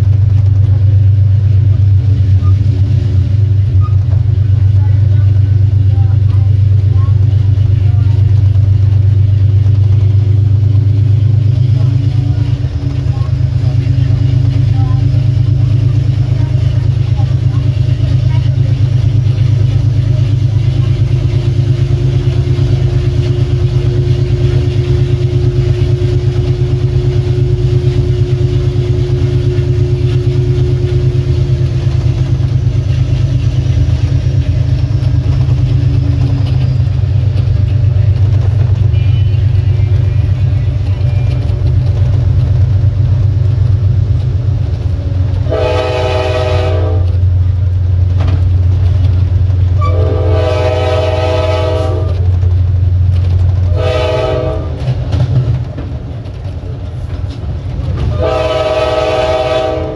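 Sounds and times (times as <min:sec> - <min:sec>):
diesel locomotive engine drone: 0:00.0 - 0:59.9
locomotive air horn blast: 0:45.4 - 0:47.2, 0:49.8 - 0:52.3, 0:53.7 - 0:54.9, 0:58.1 - 0:59.9.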